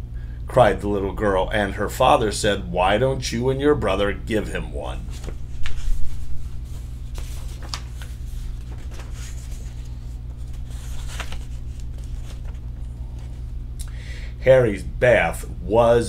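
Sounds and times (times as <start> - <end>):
low hum: 0.0 - 16.0
book pages rustling: 4.8 - 13.6.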